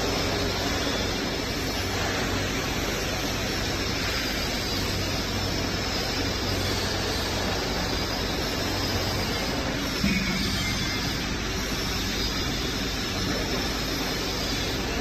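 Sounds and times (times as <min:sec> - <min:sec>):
mixer rushing noise: 0:04.9 - 0:15.0.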